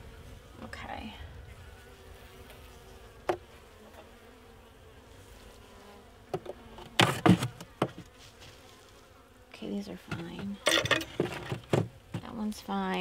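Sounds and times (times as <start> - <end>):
honey bees buzzing: 0.0 - 13.0
wooden knocks and scrapes: 6.3 - 8.6, 10.1 - 12.4.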